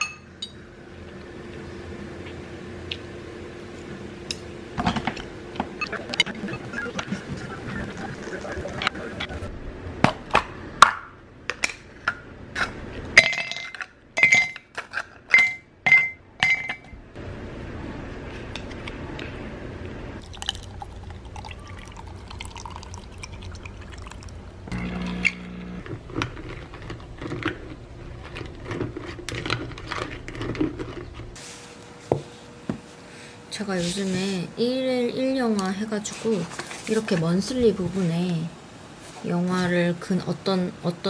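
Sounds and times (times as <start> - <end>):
liquid pouring over ice: 20.2 - 24.4.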